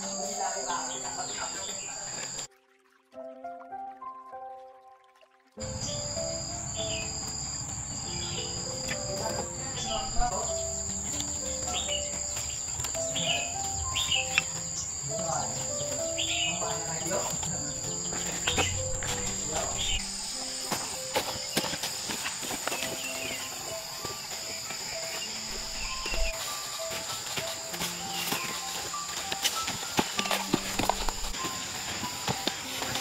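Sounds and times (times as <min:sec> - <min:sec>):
insects droning: 0:00.0 - 0:02.5, 0:05.6 - 0:33.0
soft background music: 0:00.0 - 0:33.0
short insect chirps: 0:05.6 - 0:15.1, 0:22.8 - 0:27.1.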